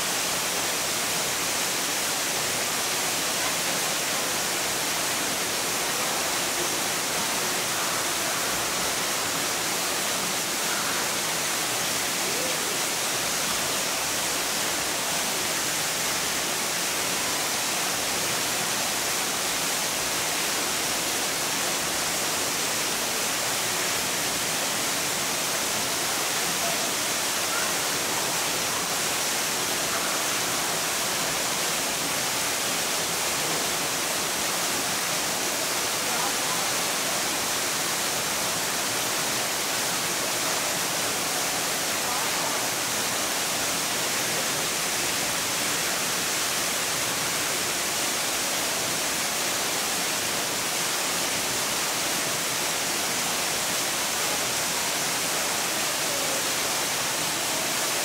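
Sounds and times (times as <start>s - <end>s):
rushing water: 0.0s - 58.0s.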